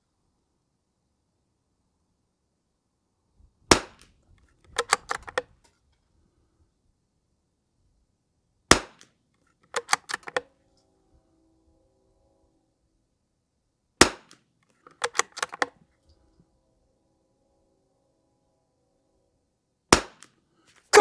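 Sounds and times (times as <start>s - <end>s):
rifle bolt metallic clicks: 4.0s - 5.7s, 9.6s - 10.5s, 14.3s - 15.8s.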